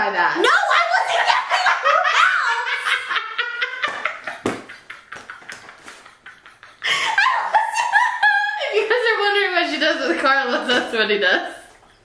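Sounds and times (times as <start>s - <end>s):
women laughing: 0.7s - 9.2s.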